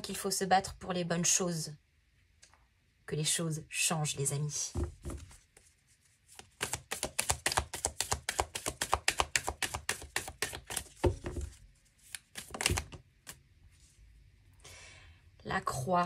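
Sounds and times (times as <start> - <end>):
cards being shuffled: 5.0 - 13.4.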